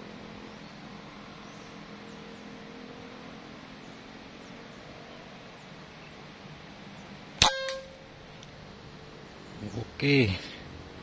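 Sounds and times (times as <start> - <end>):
air rifle shot crack: 7.4 - 8.0
brief metallic ring: 7.4 - 8.1.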